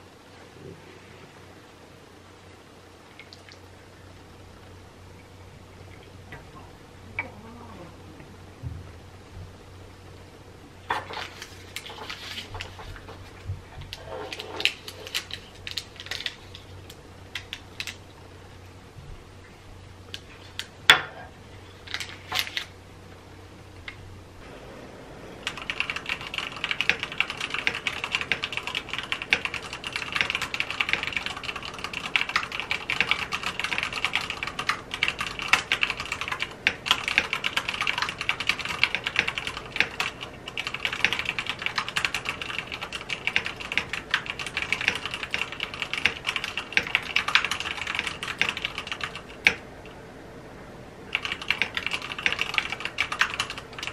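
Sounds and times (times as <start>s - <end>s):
typing on mechanical keyboard: 13.9s - 16.7s, 25.4s - 49.6s, 51.1s - 53.9s.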